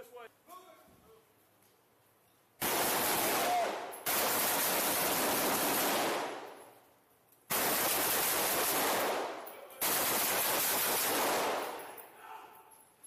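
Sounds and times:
automatic gunfire bursts: 0:02.6 - 0:06.5, 0:07.5 - 0:11.8.

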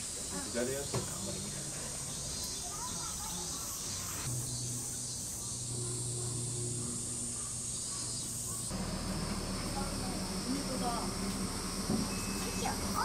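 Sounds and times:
cicada chorus buzzing: 0:00.0 - 0:13.0
low hum: 0:04.3 - 0:12.6.

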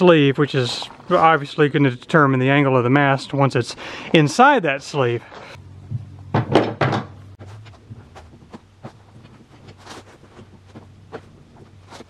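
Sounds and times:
sharp wooden knocks: 0:06.3 - 0:07.2.

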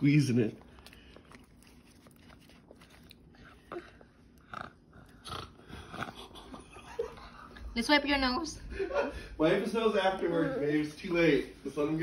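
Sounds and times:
toddler biting and chewing: 0:00.0 - 0:06.7.

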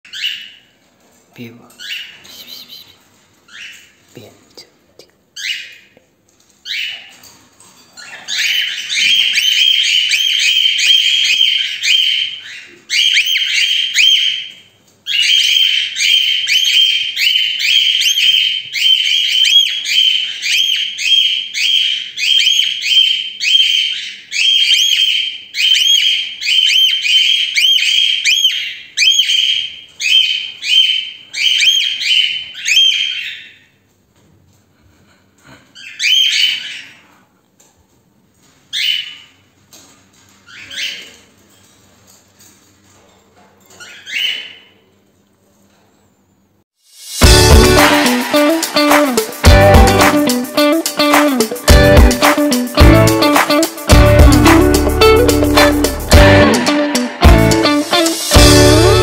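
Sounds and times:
cockatiels screaming shrill calls: 0:08.3 - 0:14.5.

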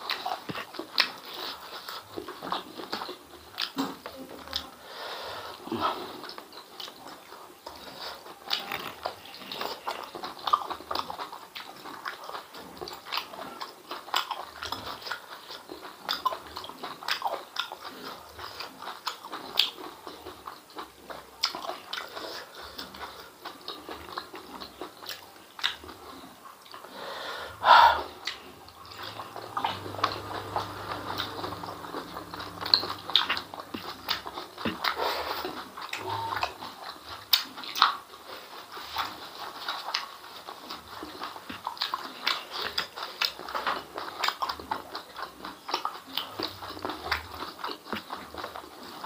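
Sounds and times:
wet chewing and lip-smacking: 0:00.0 - 0:04.8, 0:05.5 - 0:49.0.

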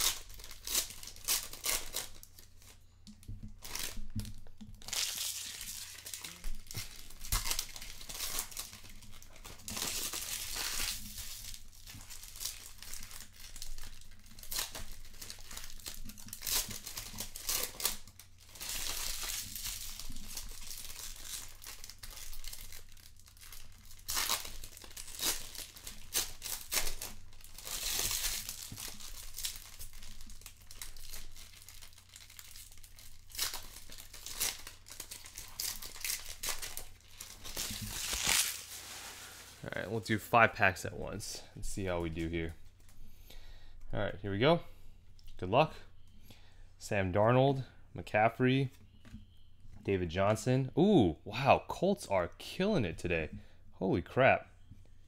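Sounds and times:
card wrappers tearing and crinkling: 0:00.0 - 0:02.8, 0:03.6 - 0:40.1.

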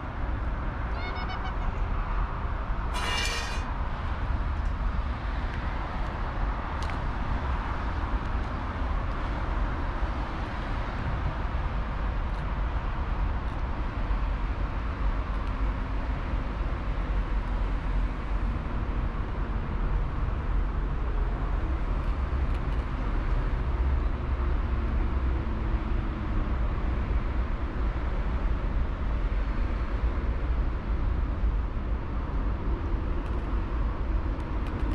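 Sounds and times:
road traffic rumble: 0:00.0 - 0:34.9.

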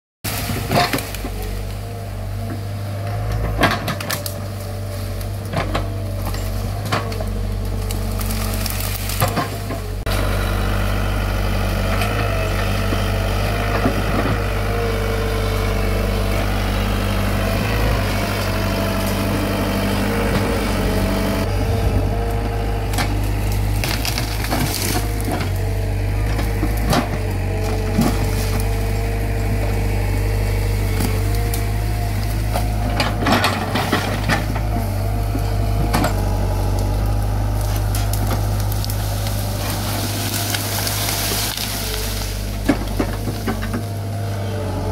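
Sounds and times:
diesel engine under load: 0:00.2 - 0:44.9
branches crushing and snapping: 0:00.3 - 0:44.9
hydraulic whine: 0:00.3 - 0:44.9
sharp wood cracks: 0:03.4 - 0:10.1, 0:22.7 - 0:29.8, 0:30.5 - 0:44.0.

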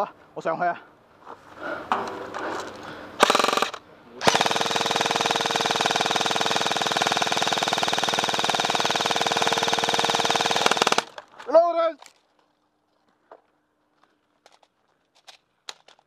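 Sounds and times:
airsoft rifle rapid firing: 0:03.2 - 0:11.2.

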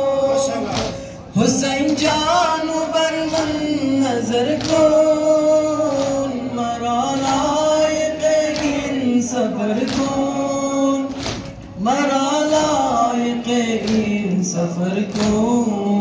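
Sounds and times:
men singing a lament: 0:00.0 - 0:16.0.

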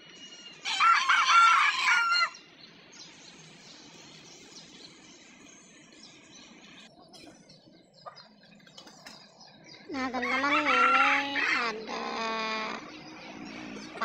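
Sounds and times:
faint bird chirping: 0:00.0 - 0:14.0
rooster crowing: 0:00.6 - 0:02.4, 0:10.2 - 0:11.6.

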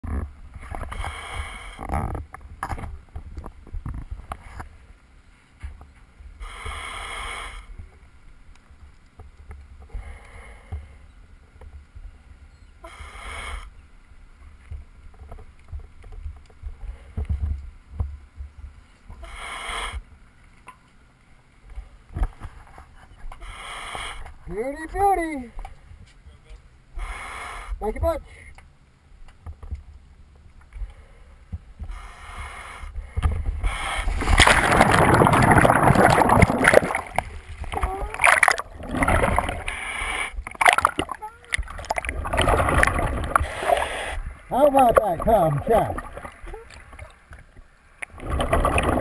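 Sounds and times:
short hissing bursts: 0:06.4 - 0:07.8, 0:23.4 - 0:24.3, 0:27.0 - 0:27.8, 0:31.9 - 0:33.0, 0:33.6 - 0:34.3, 0:39.6 - 0:40.4
boat rumbling: 0:33.0 - 0:49.0.

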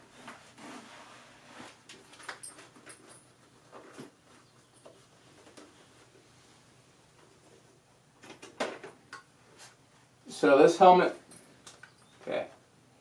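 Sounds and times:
helmet scraping and rustling: 0:00.0 - 0:07.9.

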